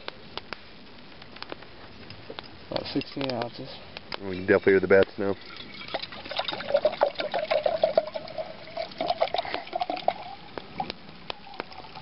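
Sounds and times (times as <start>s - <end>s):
water dripping: 2.4s - 12.0s
water pouring into cup: 5.3s - 12.0s.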